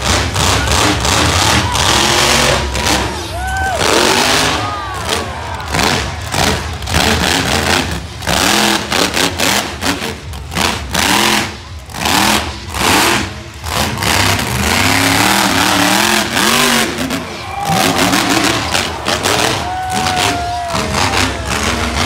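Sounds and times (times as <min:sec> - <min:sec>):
truck engine revving: 0:00.0 - 0:22.0.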